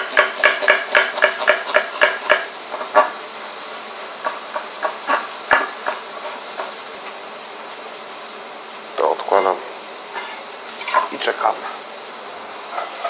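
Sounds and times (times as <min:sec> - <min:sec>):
knife chopping on wooden board: 0:00.0 - 0:03.1, 0:04.2 - 0:06.8
peppers sizzling in oil: 0:00.0 - 0:13.0.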